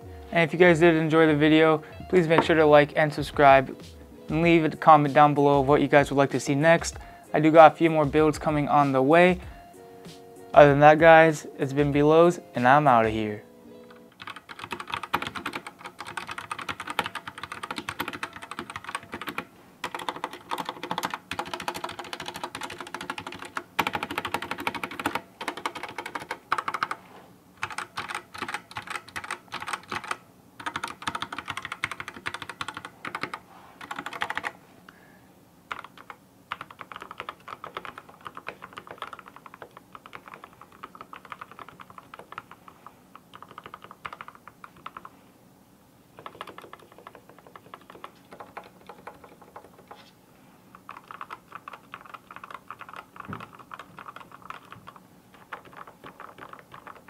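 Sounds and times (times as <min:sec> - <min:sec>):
mechanical keyboard typing: 0:13.9 - 0:27.0, 0:27.6 - 0:34.6, 0:35.7 - 0:45.1, 0:46.2 - 0:50.0, 0:50.7 - 0:57.0.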